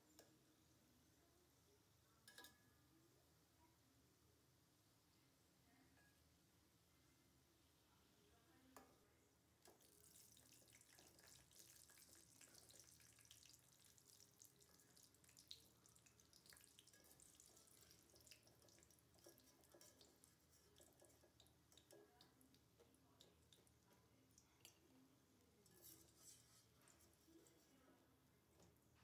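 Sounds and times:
food deep-frying in hot oil: 8.8 - 29.0.

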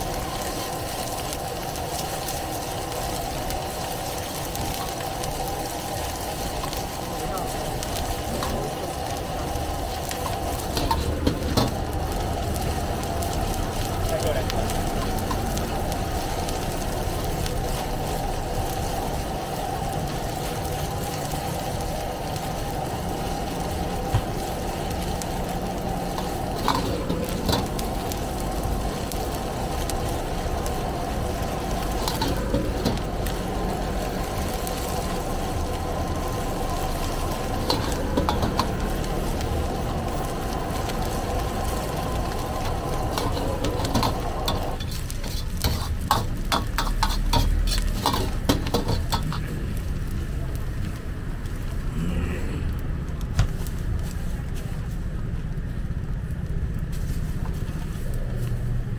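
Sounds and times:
gas burner running: 0.0 - 58.9
ladle scraping wok: 26.0 - 28.2, 42.4 - 49.7
ladle clanking against wok: 43.1 - 49.4.

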